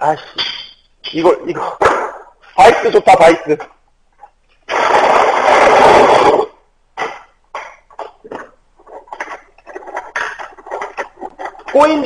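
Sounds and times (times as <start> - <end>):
loud rushing scraping noise: 4.7 - 6.5.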